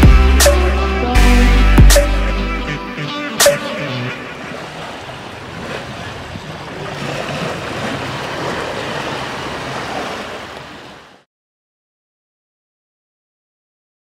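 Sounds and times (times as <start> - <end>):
waves lapping on stony shore: 4.2 - 11.3.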